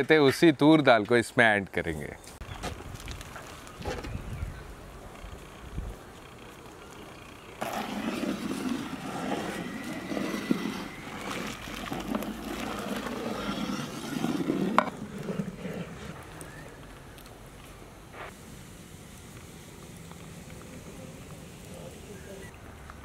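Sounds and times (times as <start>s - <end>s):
pot bubbling on the boil: 7.6s - 16.8s.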